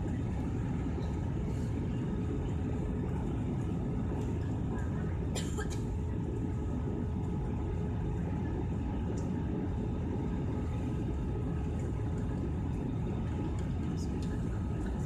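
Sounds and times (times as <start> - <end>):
faint steady hum: 0.0 - 15.0
jet engine and airflow rumble: 0.0 - 15.0.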